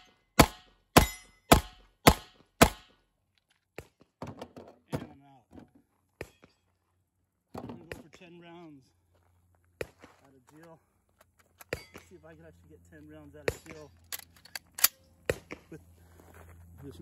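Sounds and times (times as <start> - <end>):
pistol shots: 0.0 - 3.0.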